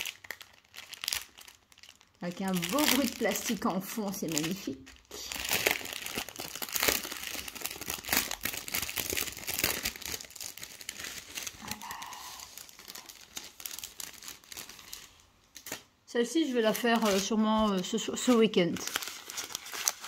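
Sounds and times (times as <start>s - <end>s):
plastic bag crinkling: 0.0s - 20.0s.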